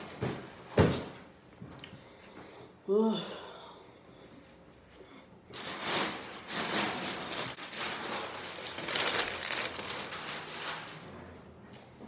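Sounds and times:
packaging rustling and crinkling: 5.6 - 11.1.

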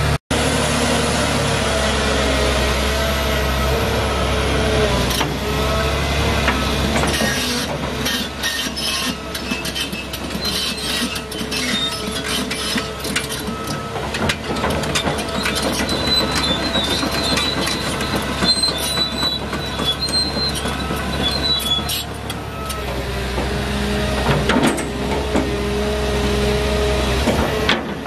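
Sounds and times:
diesel engine running: 0.0 - 28.0
crawler tracks clanking and squealing: 3.2 - 28.0.

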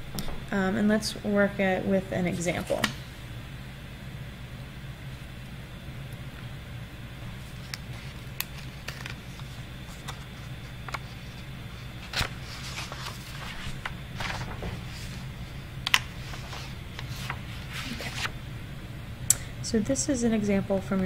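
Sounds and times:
steady low hum: 0.0 - 21.0
paper rustling: 7.4 - 18.3.

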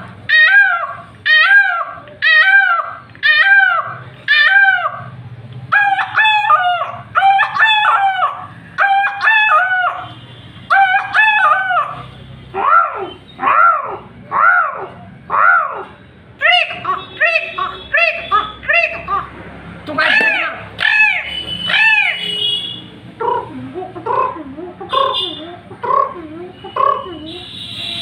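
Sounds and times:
man imitating peacock calls: 0.0 - 10.1, 10.7 - 19.4, 20.0 - 22.5, 23.2 - 27.6
short rising-and-falling calls: 20.0 - 22.4.

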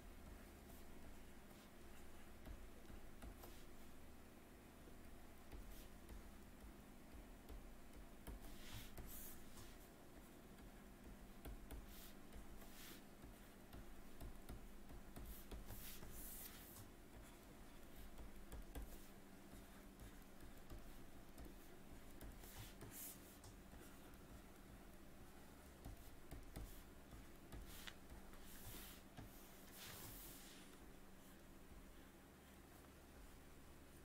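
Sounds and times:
low steady hum: 0.0 - 34.0
stylus scratching on drawing tablet: 0.2 - 4.0, 5.5 - 6.4, 7.1 - 34.0.

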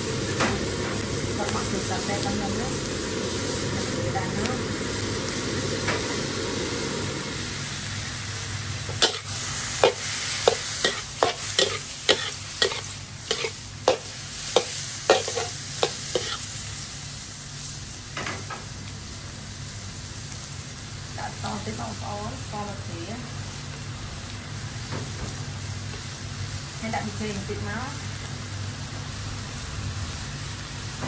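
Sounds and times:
squid sizzling in a wok: 0.0 - 31.0
utensil scraping a wok: 8.8 - 16.9.

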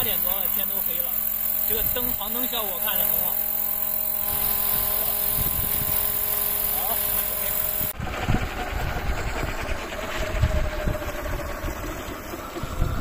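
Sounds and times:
electric motor whine: 0.0 - 13.0
wind on microphone: 4.2 - 6.3, 7.0 - 13.0.

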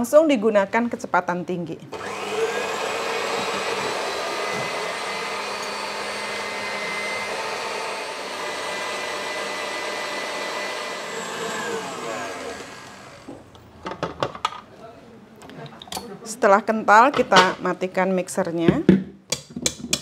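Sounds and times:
stand mixer motor whine: 2.0 - 13.4.

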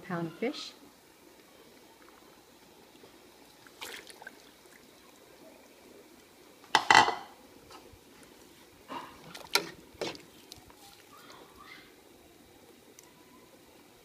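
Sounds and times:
fish splashing into soup: 3.5 - 5.0, 9.0 - 11.8
knocks against pot: 6.7 - 7.3.

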